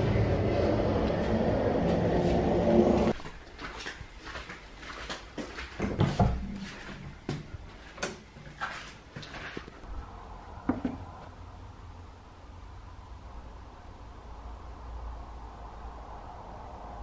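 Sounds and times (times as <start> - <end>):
flip-flop footsteps on hard floor: 3.0 - 9.8.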